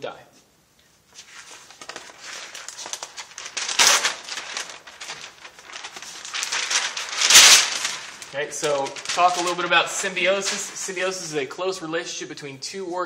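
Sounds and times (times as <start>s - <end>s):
paper swish: 1.1s - 11.1s
paper sheets rustling: 1.1s - 11.5s.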